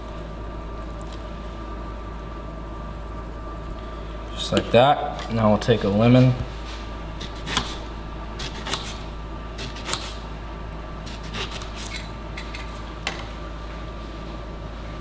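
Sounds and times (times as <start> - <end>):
knife slicing a lemon: 7.2 - 7.8, 8.4 - 9.0, 9.6 - 10.2.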